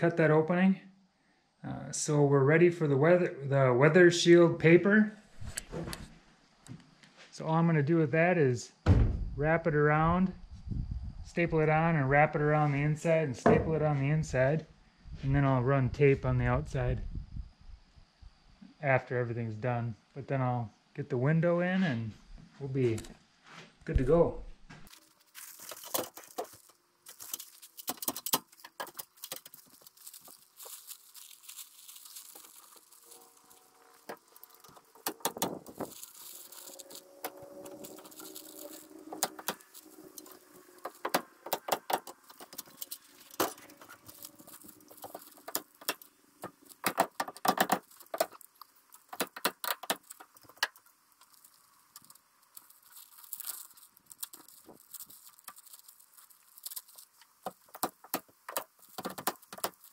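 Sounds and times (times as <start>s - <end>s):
paper rustling: 24.8s - 59.9s.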